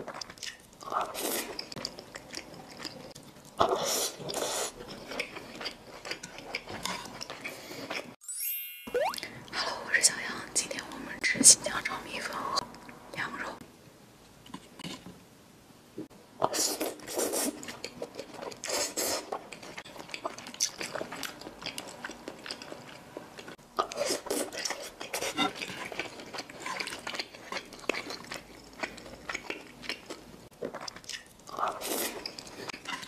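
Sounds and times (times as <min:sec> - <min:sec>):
wet crackly chewing: 0:00.0 - 0:08.2, 0:16.8 - 0:33.0.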